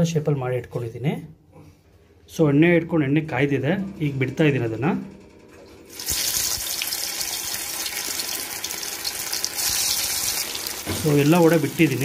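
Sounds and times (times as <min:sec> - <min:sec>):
deep-frying sizzle in hot oil: 0:05.9 - 0:12.0.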